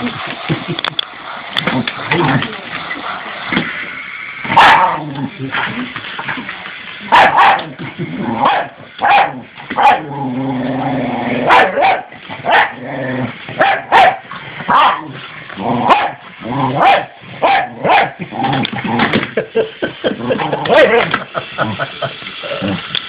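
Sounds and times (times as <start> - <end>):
dog barking sharply: 7.2 - 7.6, 8.5 - 10.0, 13.6 - 15.0
dog growling: 7.6 - 8.5, 9.3 - 13.5, 14.7 - 19.2, 20.1 - 22.9.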